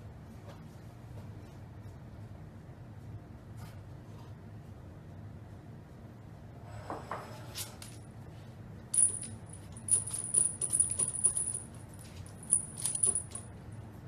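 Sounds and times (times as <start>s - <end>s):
small jingle bell jingling: 9.0s - 13.5s.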